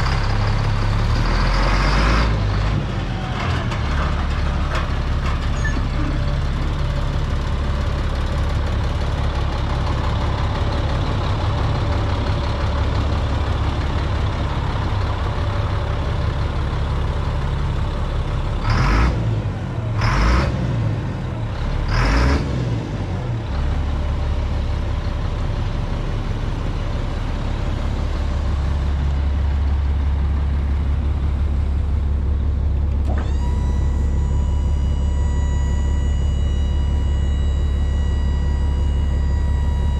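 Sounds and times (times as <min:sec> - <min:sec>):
truck engine idling: 0:00.0 - 0:39.9
hydraulic pump motor whine: 0:32.6 - 0:39.9.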